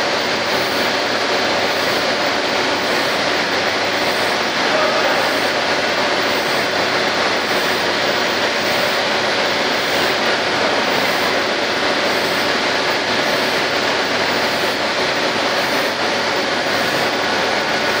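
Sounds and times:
steady machining noise: 0:00.0 - 0:18.0.

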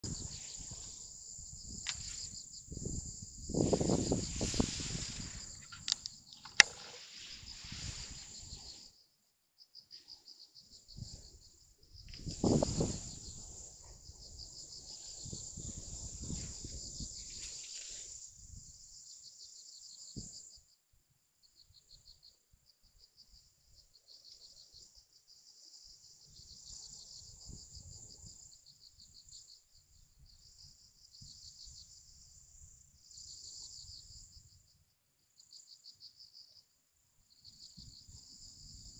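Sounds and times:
crickets chirring: 0:00.0 - 0:20.8, 0:21.4 - 0:38.9
sharp click: 0:05.6 - 0:07.0.

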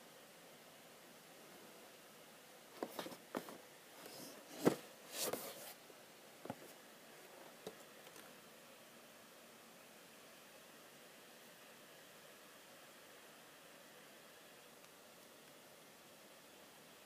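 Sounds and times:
cardboard rustle: 0:02.8 - 0:05.8.

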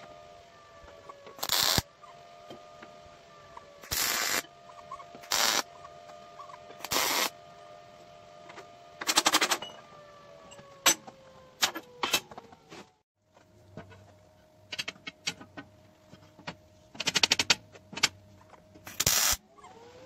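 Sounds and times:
faint steady hum: 0:00.0 - 0:20.0
welder arc crackling: 0:01.4 - 0:01.9, 0:03.8 - 0:04.5, 0:05.2 - 0:05.7, 0:06.8 - 0:07.4, 0:18.9 - 0:19.4.

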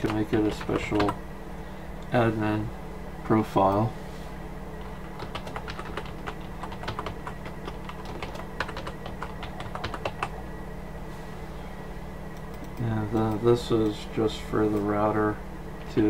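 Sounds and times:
keyboard typing: 0:00.0 - 0:01.2, 0:04.8 - 0:10.4
low steady hum: 0:00.0 - 0:16.0.

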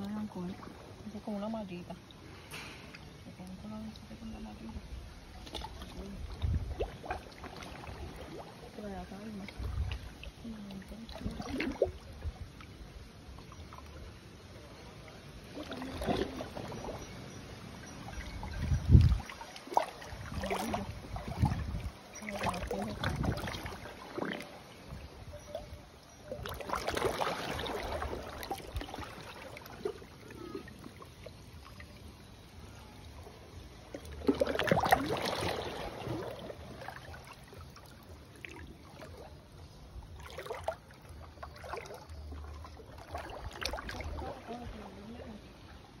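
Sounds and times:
seawater sloshing and lapping: 0:00.0 - 0:46.0
water splashes: 0:00.0 - 0:46.0
water swishing surges: 0:00.0 - 0:46.0.

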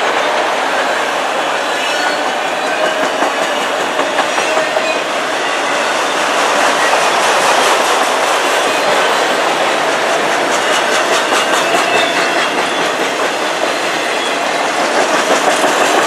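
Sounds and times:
steel train wheels rumbling on rail: 0:00.0 - 0:16.0
wheels clicking over rail joints: 0:06.7 - 0:16.0.

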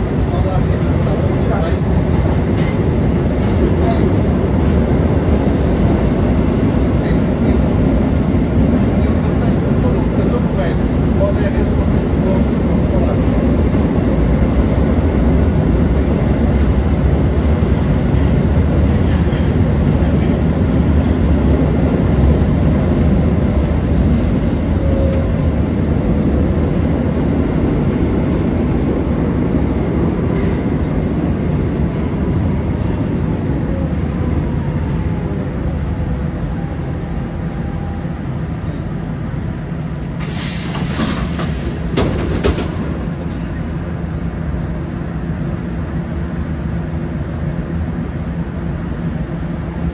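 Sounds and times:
train wheels rumbling: 0:00.0 - 0:49.9
sharp hiss of air: 0:40.2 - 0:41.8.

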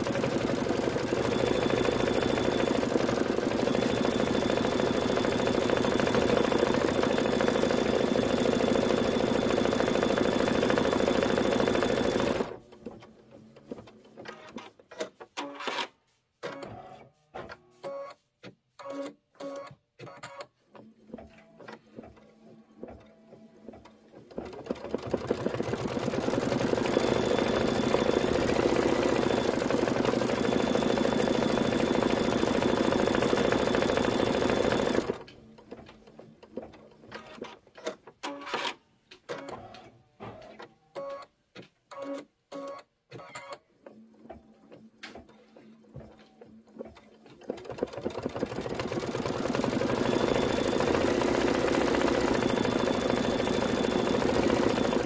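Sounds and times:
embroidery machine stitching: 0:00.0 - 0:12.7, 0:23.7 - 0:35.8, 0:46.8 - 0:55.0.

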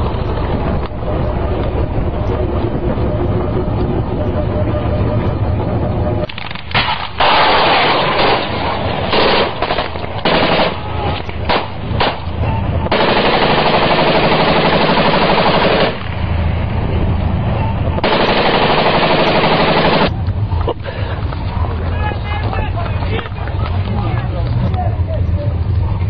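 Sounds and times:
machine gun firing: 0:06.2 - 0:16.3, 0:18.0 - 0:20.1.

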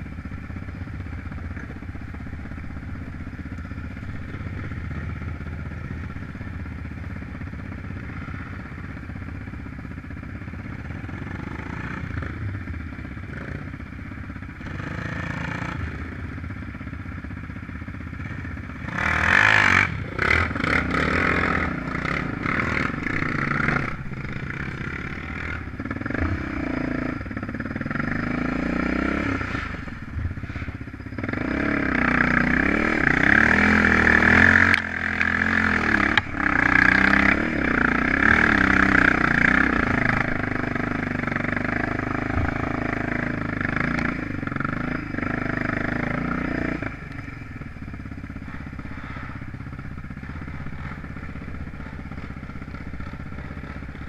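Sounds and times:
off-road vehicle engine revving: 0:10.6 - 0:12.4, 0:14.6 - 0:16.3, 0:18.2 - 0:54.0.

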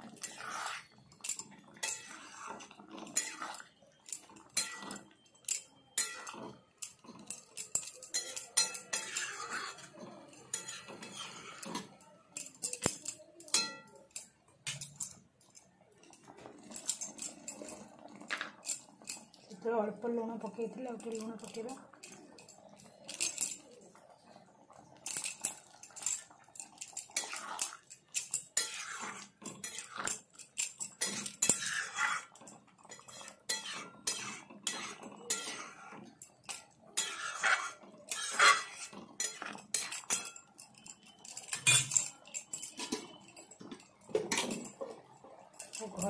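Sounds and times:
spatula scraping metal pan: 0:00.0 - 0:07.4, 0:08.0 - 0:13.9, 0:26.5 - 0:41.9.

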